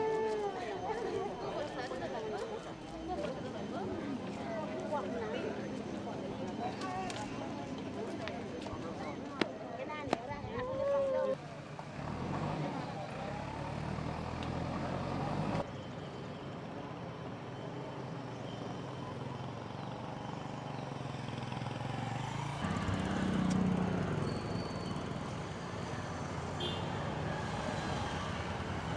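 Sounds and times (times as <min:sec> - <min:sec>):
vehicle engine hum: 0:11.3 - 0:28.9.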